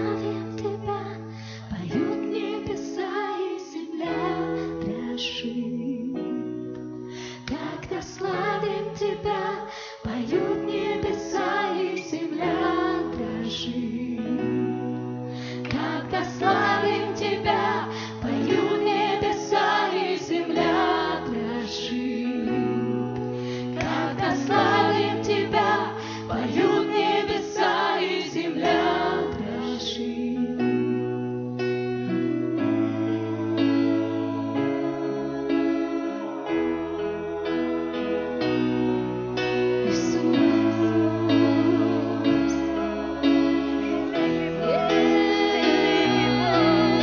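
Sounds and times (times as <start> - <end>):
people singing: 0.0 - 6.3, 7.3 - 47.0
worship band playing: 37.4 - 47.0.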